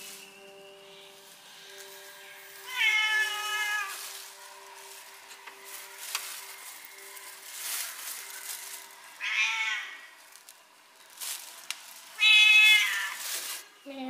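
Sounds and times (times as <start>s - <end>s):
kitten meowing: 12.2s - 13.2s.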